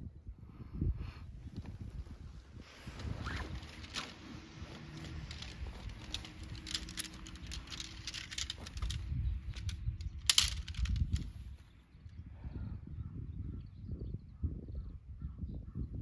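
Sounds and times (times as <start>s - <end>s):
tent poles clicking and rattling: 2.6s - 11.7s.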